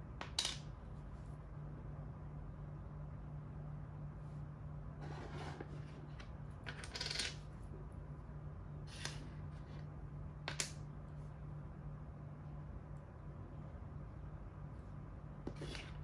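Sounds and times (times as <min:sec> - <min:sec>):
chess pieces clacking on board: 0:05.4 - 0:07.5, 0:15.5 - 0:16.0.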